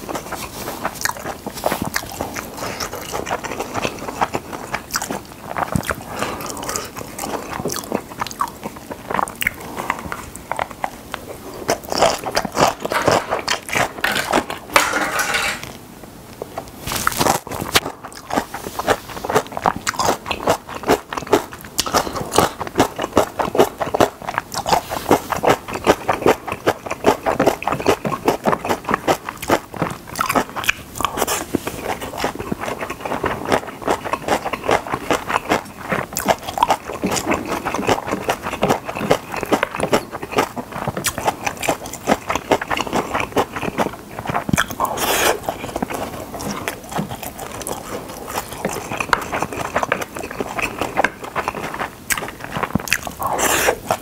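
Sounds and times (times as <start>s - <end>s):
close chewing and lip-smacks: 0.0s - 14.7s, 16.6s - 54.0s
spoon scraping ceramic plate: 12.8s - 15.7s.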